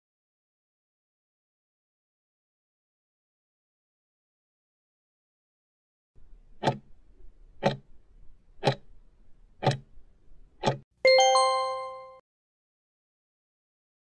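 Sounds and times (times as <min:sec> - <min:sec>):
clock ticks: 0:06.6 - 0:07.0, 0:07.6 - 0:07.9, 0:08.6 - 0:08.9, 0:09.6 - 0:09.9, 0:10.6 - 0:10.8
ringing chime: 0:11.1 - 0:12.2.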